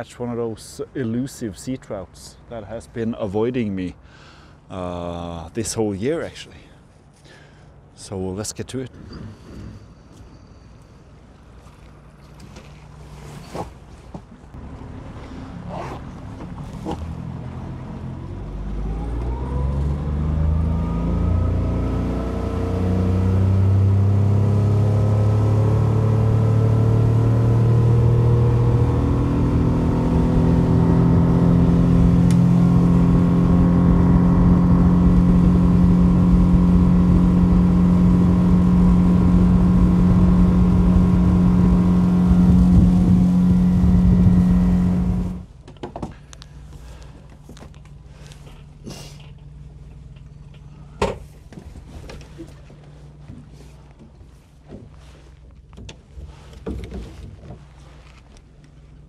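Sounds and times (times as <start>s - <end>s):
boat engine accelerating: 14.5s - 45.6s.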